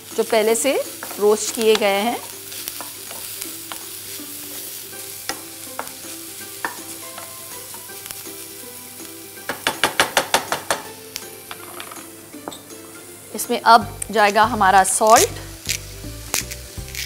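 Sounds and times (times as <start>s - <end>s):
vegetables sizzling in a frying pan: 0.0s - 17.0s
spatula knocking on pan: 9.4s - 12.0s.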